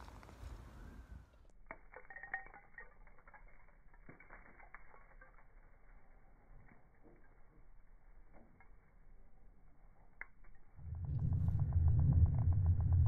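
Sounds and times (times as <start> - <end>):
loose dirt falling: 1.5 - 9.2.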